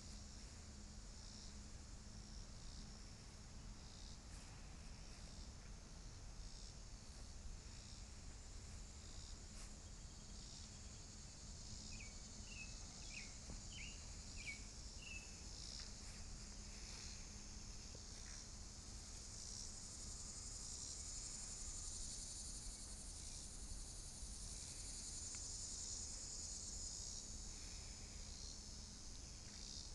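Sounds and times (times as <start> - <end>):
insect chorus: 0.0 - 29.9
bird chirps: 12.0 - 15.3.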